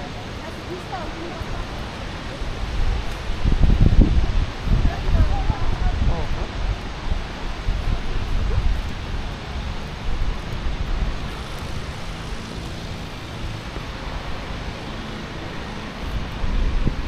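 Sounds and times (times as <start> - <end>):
steady rushing roar: 0.0 - 17.0
wind buffeting microphone: 0.0 - 17.0.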